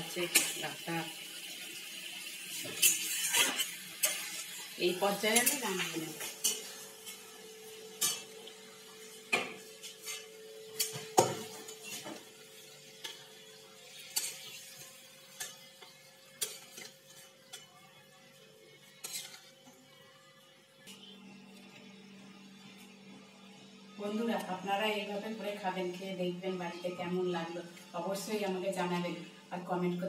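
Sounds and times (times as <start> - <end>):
metal spatula scraping pan: 2.7 - 7.3, 14.0 - 15.7, 19.0 - 19.5.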